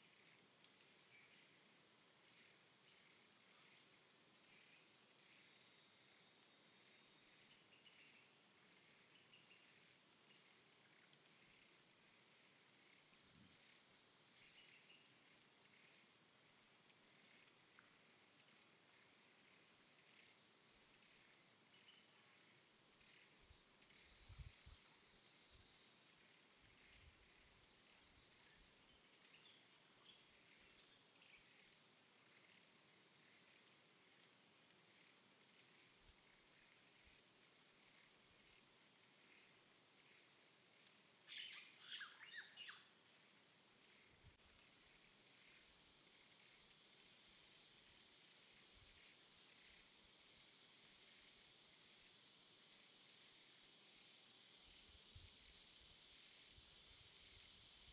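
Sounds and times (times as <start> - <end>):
faint high-pitched hiss: 0.0 - 57.9
faint chirps: 41.2 - 48.0.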